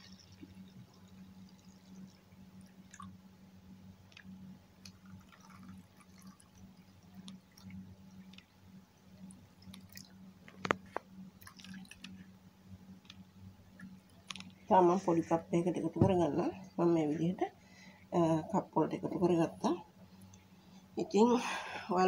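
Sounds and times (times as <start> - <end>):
thick liquid trickling and dripping: 0.0 - 3.3, 4.0 - 12.3
steady low hum: 0.0 - 22.0.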